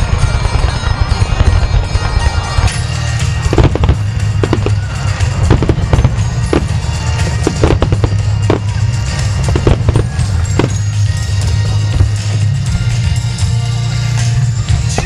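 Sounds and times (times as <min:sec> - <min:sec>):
firework shells bursting: 0:00.0 - 0:11.3
loud music with heavy bass: 0:02.5 - 0:15.0.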